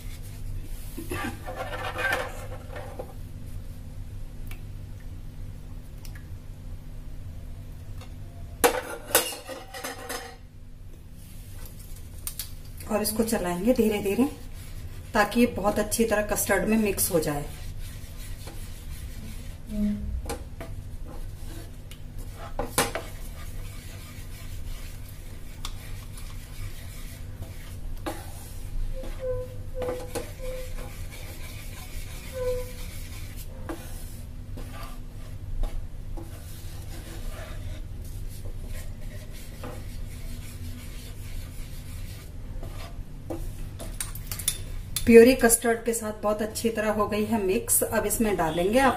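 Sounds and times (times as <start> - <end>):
low steady hum: 0.0 - 48.9
wooden spatula scraping metal pan: 1.1 - 2.9, 21.1 - 43.6.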